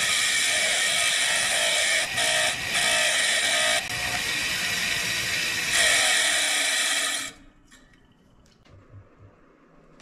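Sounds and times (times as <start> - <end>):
grinder motor whine: 0.0 - 7.4.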